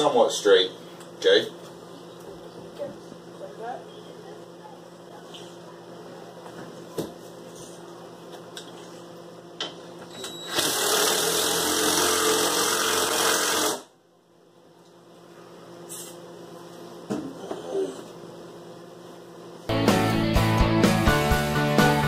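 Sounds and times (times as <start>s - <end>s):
cordless drill driving screw: 10.5s - 13.8s.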